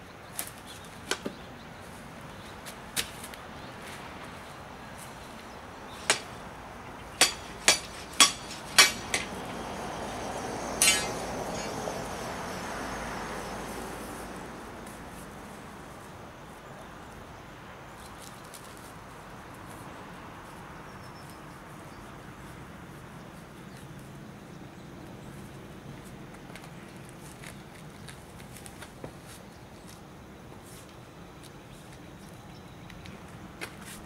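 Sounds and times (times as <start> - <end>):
soft rushing noise: 3.8 - 16.2
hand tools clicking and knocking: 6.0 - 6.4, 7.2 - 9.6, 10.8 - 11.8
ringing metallic clink: 7.2 - 9.4, 10.8 - 11.8.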